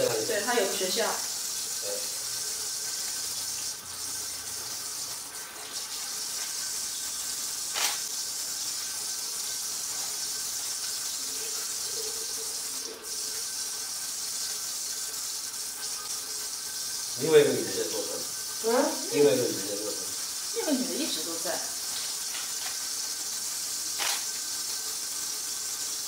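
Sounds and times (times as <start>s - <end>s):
water running from a tap: 0.0s - 26.0s
sharp click: 7.7s - 8.0s.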